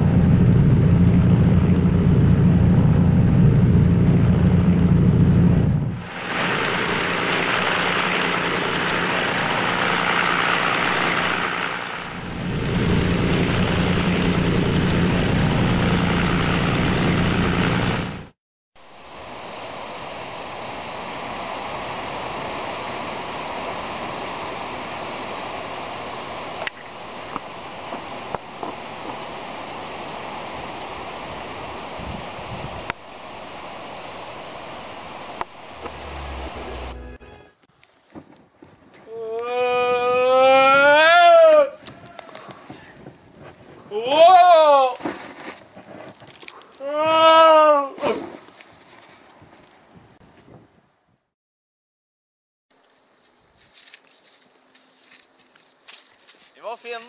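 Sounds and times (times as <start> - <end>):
aircraft engine drone: 0.0 - 18.3, 35.2 - 37.6
steady rushing noise: 0.0 - 18.3, 18.9 - 37.2.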